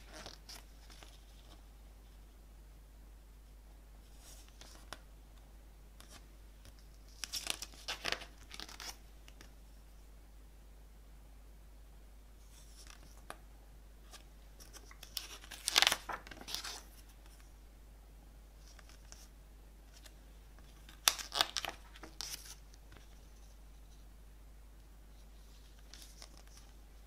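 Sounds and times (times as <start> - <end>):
glossy pages turning: 0.0 - 1.6, 6.0 - 9.0, 14.1 - 17.4, 19.9 - 23.1, 25.6 - 26.8.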